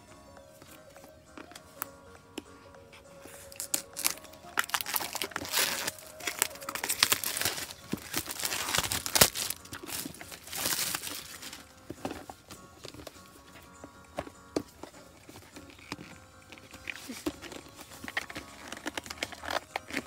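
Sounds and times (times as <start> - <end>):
packaging crinkling: 3.4 - 13.4, 14.2 - 20.0.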